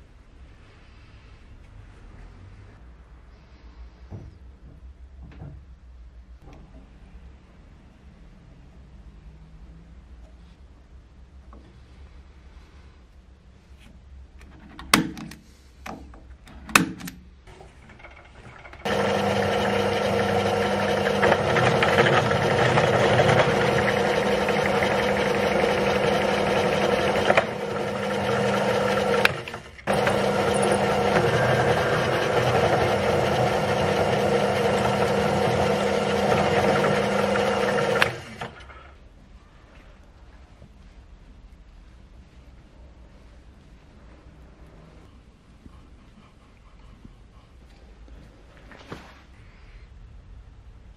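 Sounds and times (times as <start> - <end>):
drill press boring into metal: 17.8 - 38.7.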